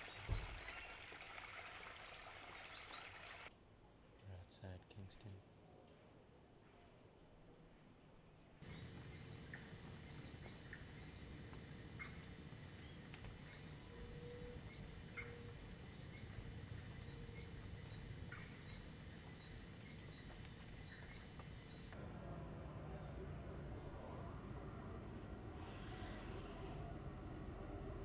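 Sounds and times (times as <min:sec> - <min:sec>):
high-pitched insect drone: 0:08.6 - 0:22.0.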